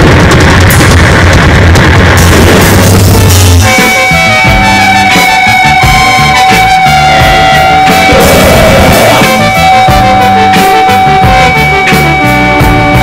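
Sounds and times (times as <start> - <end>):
loud rock music: 0.0 - 13.0
steady high note: 3.4 - 13.0.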